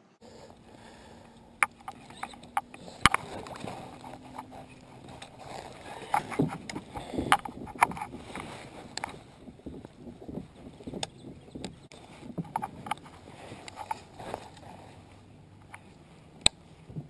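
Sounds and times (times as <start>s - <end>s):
soft handling noise: 0.3s - 17.0s
reel and rod clicks and knocks: 1.3s - 14.8s.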